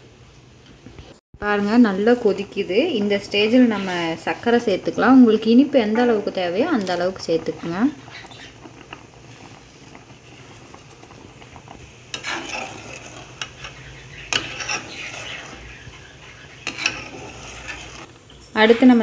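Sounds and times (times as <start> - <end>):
milk bubbling: 3.7 - 18.4.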